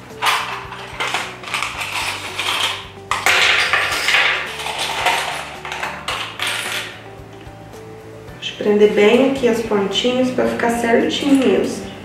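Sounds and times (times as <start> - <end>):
clips rattling in plastic cup: 0.1 - 6.9.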